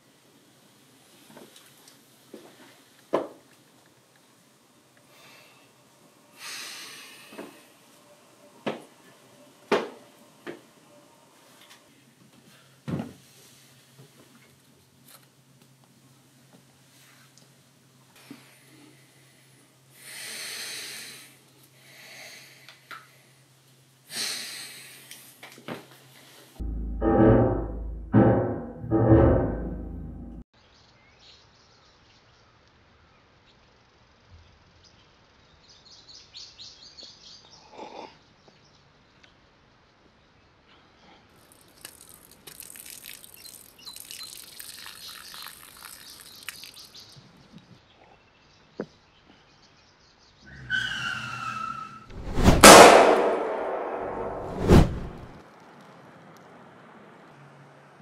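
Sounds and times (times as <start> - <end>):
drink and ice splashing on grass: 41.4 - 47.0.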